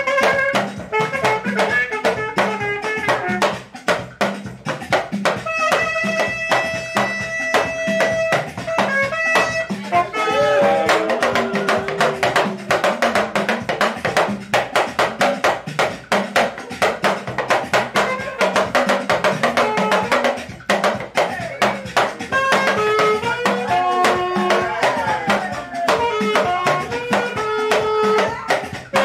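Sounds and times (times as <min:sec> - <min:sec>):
saxophone playing: 0:00.0 - 0:03.5, 0:05.4 - 0:13.8, 0:17.9 - 0:20.6, 0:21.2 - 0:29.0
drum and percussion beat: 0:00.0 - 0:29.0.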